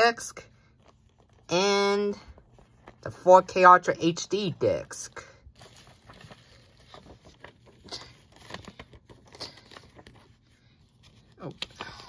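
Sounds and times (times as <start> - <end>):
paper rustling: 0.6 - 1.5, 2.1 - 3.6, 4.4 - 12.0.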